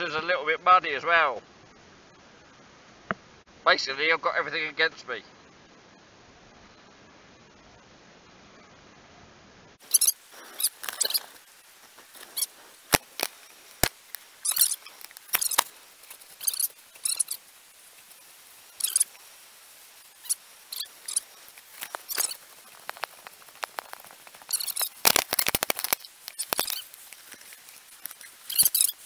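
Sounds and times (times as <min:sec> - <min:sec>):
camera handling rustles and squeaks: 0:09.9 - 0:11.4, 0:12.1 - 0:13.4, 0:14.4 - 0:15.7, 0:20.8 - 0:29.0
sharp clicks: 0:12.1 - 0:17.4, 0:20.8 - 0:29.0.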